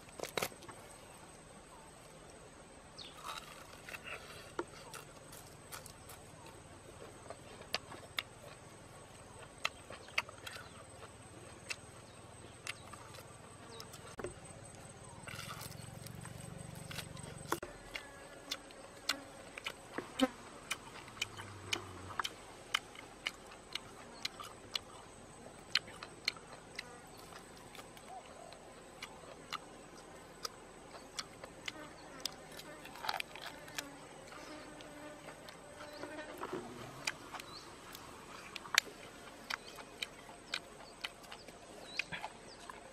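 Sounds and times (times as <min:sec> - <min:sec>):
chewing and lip-smacking: 0:03.2 - 0:14.2, 0:15.2 - 0:42.9
wet lip smacks and chewing: 0:20.7 - 0:25.0, 0:25.7 - 0:32.4, 0:38.5 - 0:42.9.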